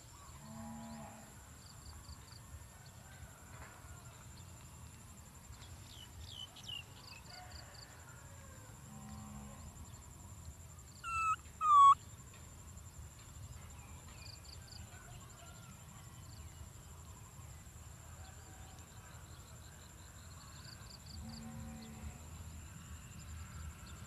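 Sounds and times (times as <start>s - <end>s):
baby macaque squeaky calls: 11.0s - 12.0s.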